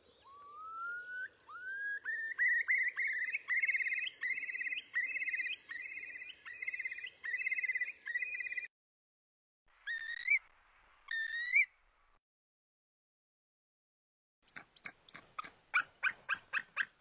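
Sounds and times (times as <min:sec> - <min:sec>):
bird call with buzzy trills: 0:09.9 - 0:10.4, 0:11.1 - 0:11.7.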